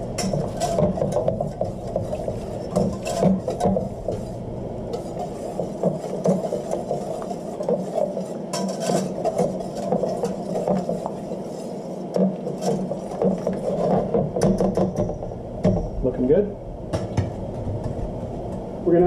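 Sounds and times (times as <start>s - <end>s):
whisk scraping metal pan: 0.0s - 15.2s.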